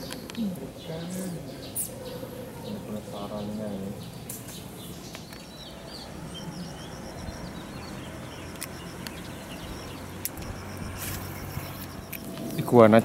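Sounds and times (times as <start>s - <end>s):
birds chirping: 0.0s - 13.0s
sharp clicks: 8.4s - 9.3s.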